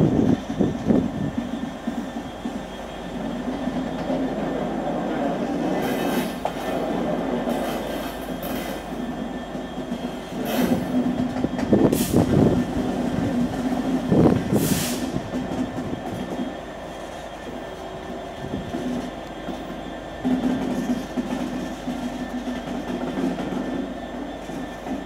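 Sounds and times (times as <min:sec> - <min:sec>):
diesel locomotive engine hum: 0:00.0 - 0:25.0
hissy bursts: 0:14.4 - 0:15.5.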